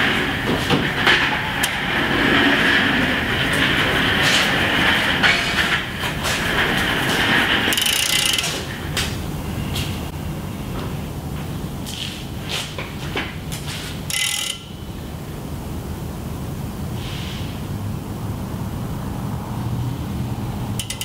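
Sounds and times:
drum fan whirring: 0.0s - 16.9s
rasping metal work: 2.2s - 8.7s
ratchet wrench clicks and knocks: 7.7s - 8.6s, 14.1s - 14.7s, 20.8s - 21.0s.

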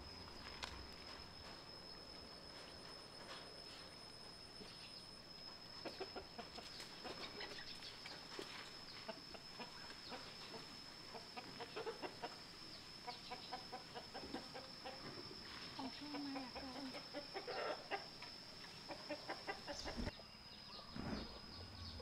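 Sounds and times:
high-pitched whine: 0.0s - 22.0s
faint animal calls: 5.7s - 22.0s.

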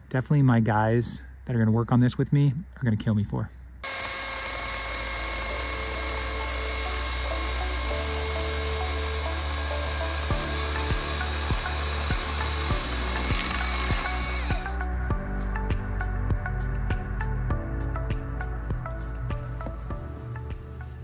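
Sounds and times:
chainsaw cutting wood: 3.8s - 14.8s
background music with beat: 10.2s - 21.0s.

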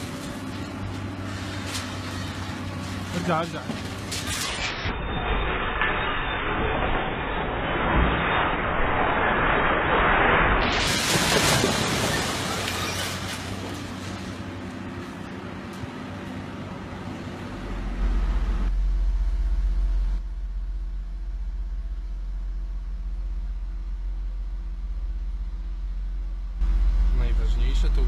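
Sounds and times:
heavy machinery engine drone: 0.0s - 28.0s
rubble crashing down: 3.8s - 14.5s.

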